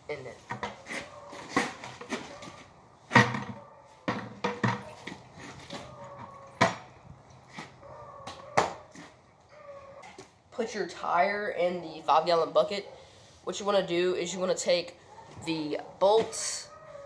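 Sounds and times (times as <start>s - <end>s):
plastic bucket knocking: 3.1s - 5.2s.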